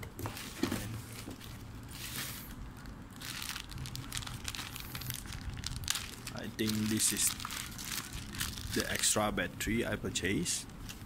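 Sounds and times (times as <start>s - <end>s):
plastic bag crinkling: 1.4s - 9.2s.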